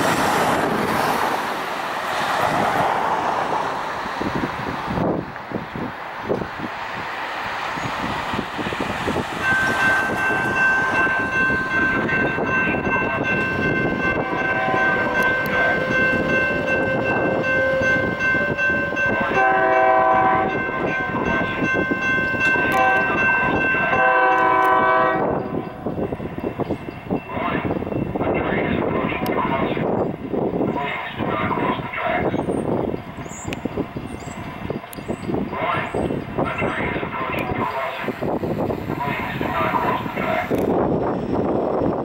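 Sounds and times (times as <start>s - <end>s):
train running noise: 0.0s - 42.0s
high warning tone: 9.4s - 29.3s
train horn chord blasts: 13.9s - 21.3s, 22.6s - 25.7s.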